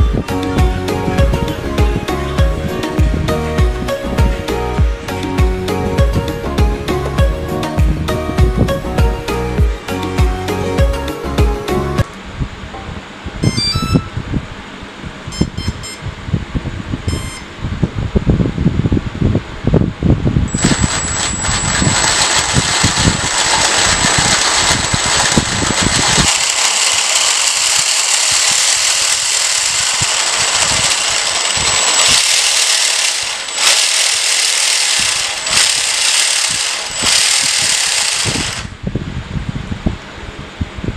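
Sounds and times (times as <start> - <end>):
electric motor high whine: 0.0 - 12.0, 17.1 - 17.5, 20.5 - 38.9
gear rattle: 20.5 - 38.8.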